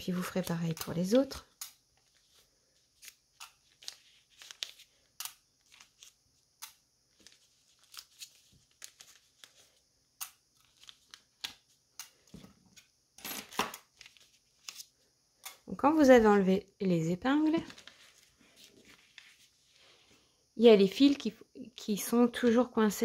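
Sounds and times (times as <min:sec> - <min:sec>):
paper rustling: 0:02.0 - 0:06.2, 0:07.1 - 0:09.8, 0:10.5 - 0:11.7, 0:12.3 - 0:14.9, 0:17.5 - 0:20.0.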